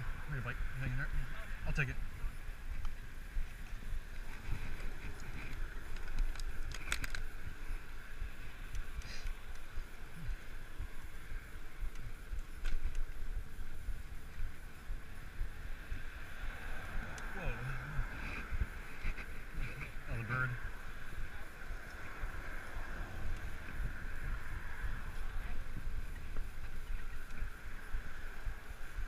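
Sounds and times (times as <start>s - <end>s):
bicycle tyres rumbling: 0.0s - 29.0s
wind buffeting microphone: 0.0s - 29.0s
light clicks and rattles: 2.8s - 7.3s.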